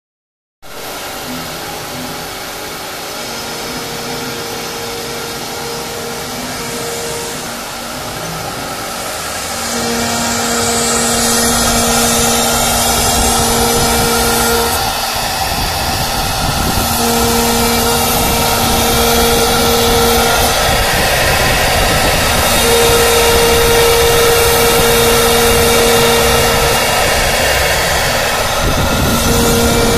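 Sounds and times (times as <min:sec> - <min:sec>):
cutter hissing through wood: 0:00.7 - 0:29.9
router spindle whine: 0:00.7 - 0:29.9.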